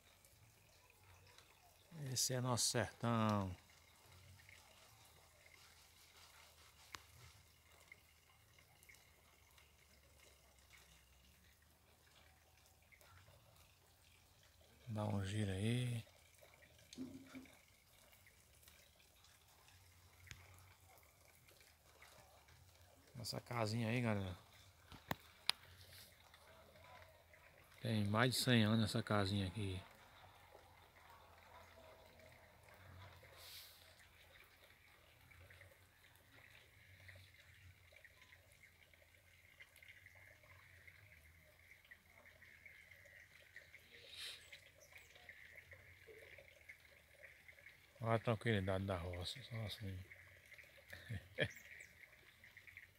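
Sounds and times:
faint dripping rainwater: 0.0 - 52.9
brief hiss: 44.1 - 44.4.

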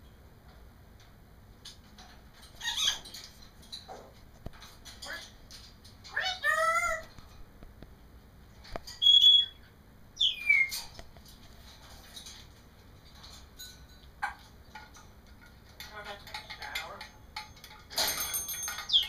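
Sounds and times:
parrot whistling: 9.0 - 9.6, 10.2 - 10.8.

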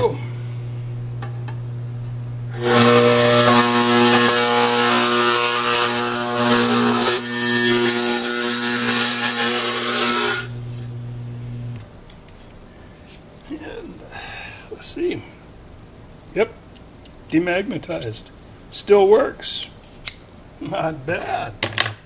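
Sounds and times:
electromagnet humming: 0.0 - 12.0
calipers buzzing against metal: 0.1 - 11.8.

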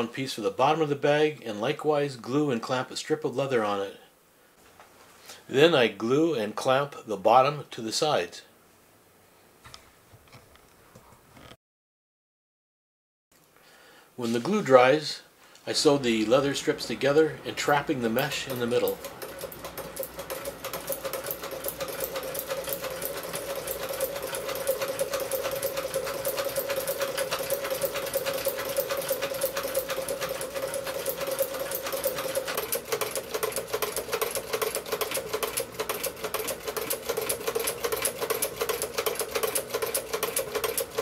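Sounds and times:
sewing machine stitching: 17.6 - 41.0.

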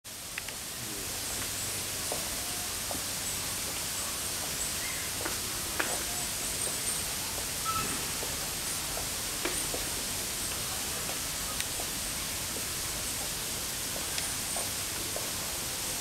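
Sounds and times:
steady background hiss: 0.1 - 16.0
faint scattered clicks: 0.3 - 0.6.

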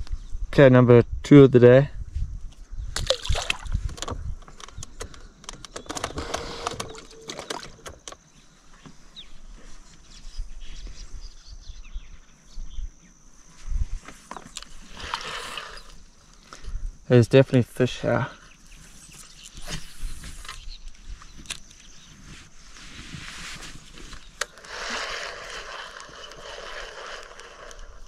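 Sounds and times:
handling clicks and knocks: 3.8 - 8.2.

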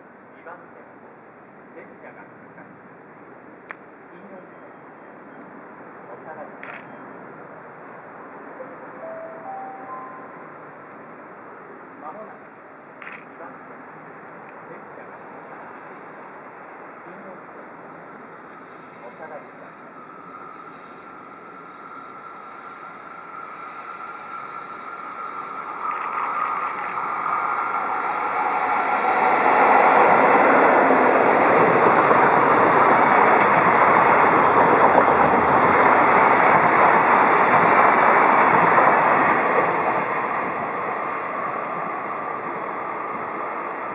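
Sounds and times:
freight train passing: 0.0 - 43.9
wheels rumbling on rails: 18.4 - 43.9.

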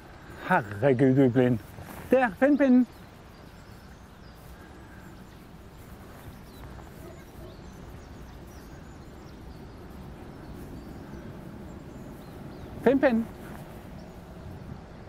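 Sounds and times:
faint bird chirps: 1.5 - 14.8
wind on microphone: 5.1 - 15.0.

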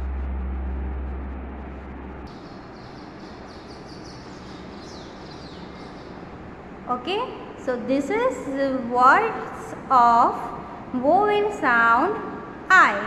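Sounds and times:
low steady hum: 0.0 - 13.0
faint bird chirps: 2.4 - 6.2.

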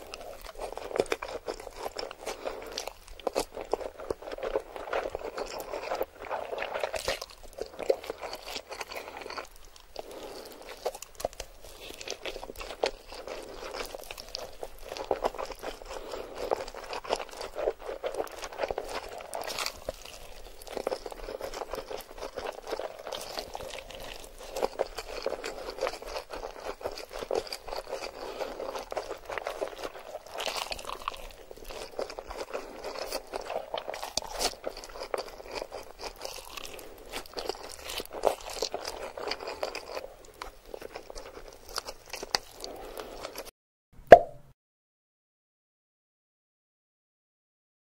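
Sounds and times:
chewing with mouth clicks: 0.0 - 43.5
slurping noodles: 11.8 - 43.5.

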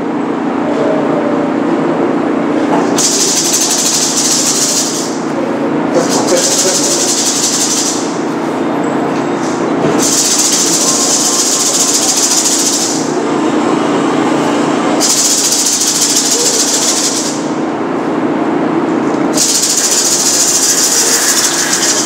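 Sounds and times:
low background hum: 0.0 - 22.0
gourd rattle shaken rapidly: 3.0 - 5.1, 6.0 - 8.2, 10.0 - 13.1, 15.0 - 17.4, 19.4 - 22.0.

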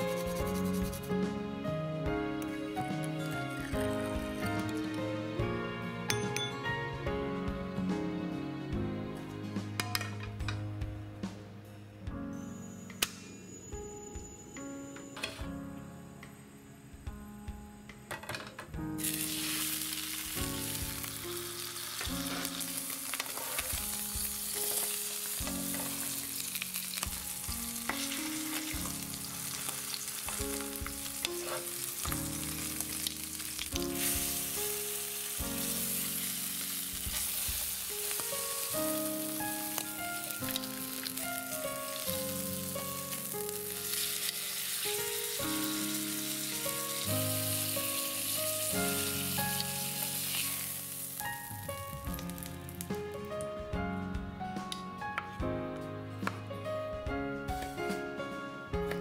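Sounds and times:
background music track: 0.0 - 59.0
fish sizzling in frying pan: 19.0 - 53.1.

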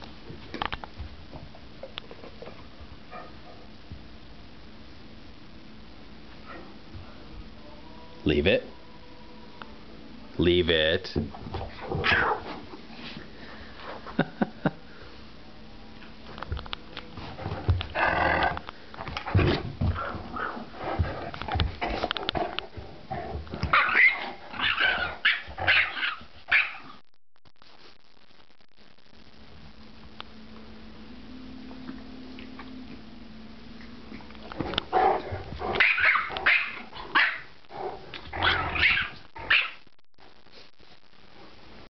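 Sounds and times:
dogs growling: 17.8 - 18.7, 34.2 - 39.6
small dog barking: 23.7 - 27.0, 35.8 - 37.5, 38.4 - 39.8.

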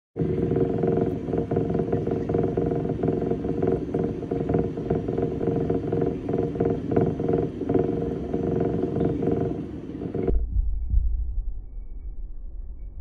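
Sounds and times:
machinery running with flutter: 0.2 - 10.4.

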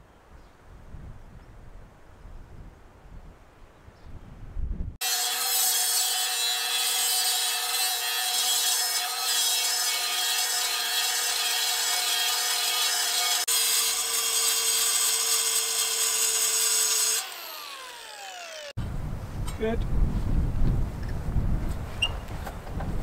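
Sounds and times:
angle grinder grinding steel: 5.0 - 18.8
grinder winding down: 5.0 - 18.8.

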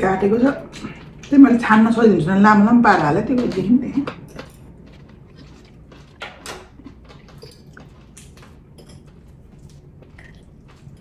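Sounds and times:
forks clinking on plates: 7.3 - 9.3.

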